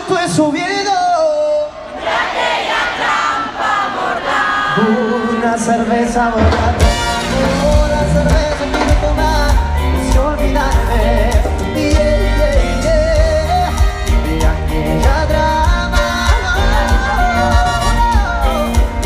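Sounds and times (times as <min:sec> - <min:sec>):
lead singer singing: 0:03.1 - 0:19.0
live cumbia band playing: 0:04.7 - 0:19.0.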